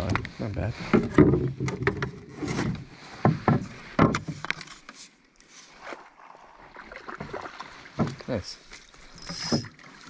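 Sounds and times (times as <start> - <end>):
gear knocking against canoe: 0.0 - 4.7.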